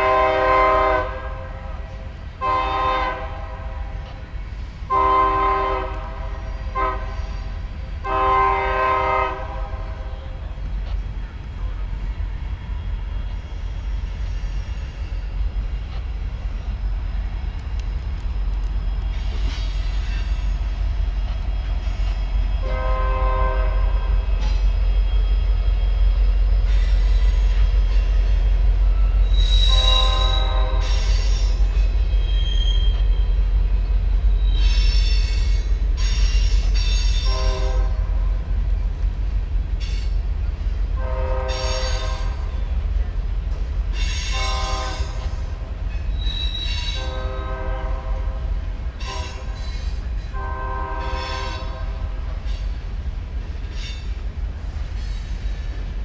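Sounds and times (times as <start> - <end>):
freight train rumbling past: 0.0 - 56.0
train wheels squealing: 6.3 - 8.6, 10.2 - 37.8, 39.7 - 47.7, 48.9 - 52.8, 53.5 - 56.0.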